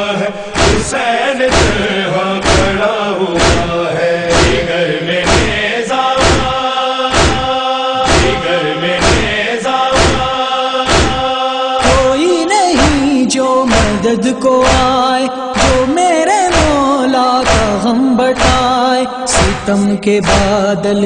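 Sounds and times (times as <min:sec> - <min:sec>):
male voices chanting: 0:00.0 - 0:21.0
chest-striking thumps: 0:06.2 - 0:07.5, 0:08.1 - 0:08.4, 0:10.0 - 0:10.3, 0:10.9 - 0:12.2.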